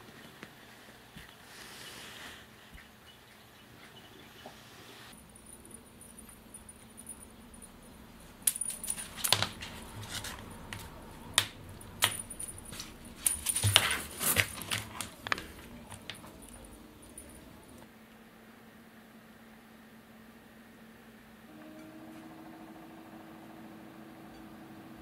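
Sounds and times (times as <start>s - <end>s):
cat toy metal jingling: 5.2s - 11.0s, 11.7s - 15.1s.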